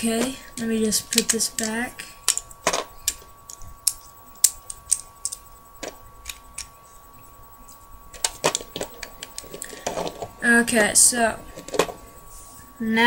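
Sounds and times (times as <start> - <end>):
plastic bricks clicking: 0.1 - 6.7, 8.2 - 10.3.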